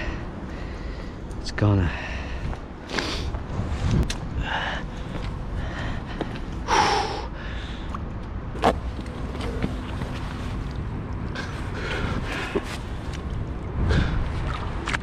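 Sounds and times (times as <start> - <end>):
steady low rumble: 0.0 - 15.0
landing net in water: 14.0 - 15.0.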